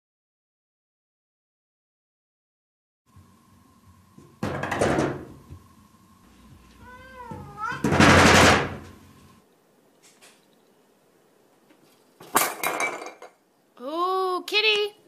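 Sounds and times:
glass door rattling and banging: 0:04.4 - 0:05.3, 0:07.2 - 0:08.9
cat meowing: 0:06.8 - 0:08.0.

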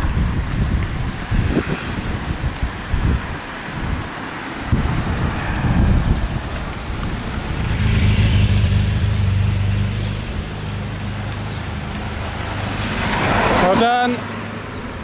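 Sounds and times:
car engine humming: 0:04.2 - 0:15.0.

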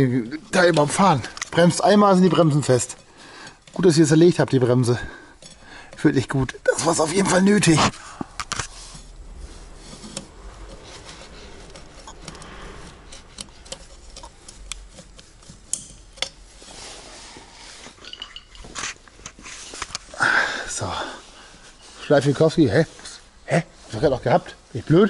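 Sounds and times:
metal parts clinking: 0:00.5 - 0:07.8, 0:10.0 - 0:16.8, 0:18.0 - 0:19.4.

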